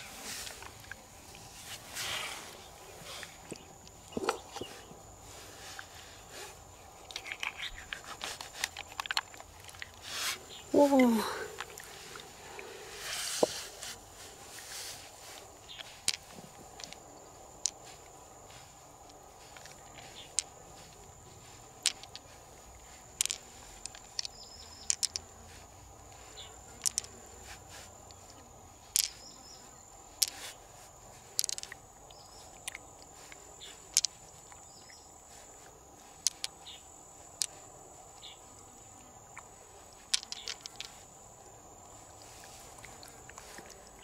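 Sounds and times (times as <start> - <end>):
pearls clicking together: 7.0 - 10.0, 15.0 - 35.4, 36.0 - 37.6, 39.3 - 41.1.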